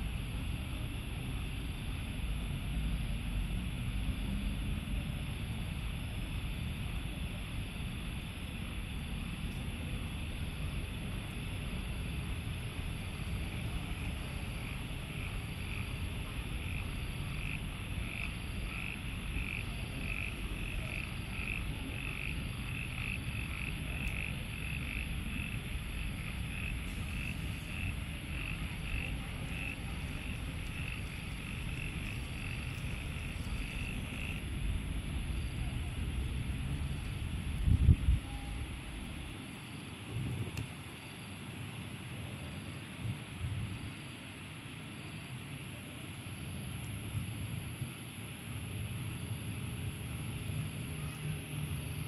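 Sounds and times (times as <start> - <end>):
low steady rumble: 0.0 - 40.7
constant high hiss: 0.0 - 52.0
frogs croaking: 6.9 - 42.8.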